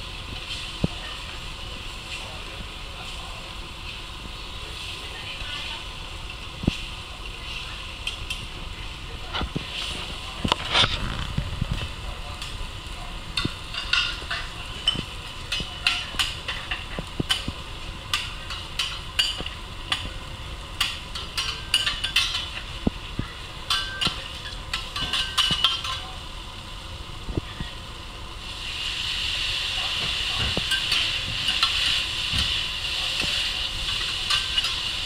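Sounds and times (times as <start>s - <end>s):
meat sizzling: 0.0s - 35.0s
knife and spatula clacking on griddle: 13.4s - 20.2s, 20.8s - 22.6s, 33.2s - 34.9s.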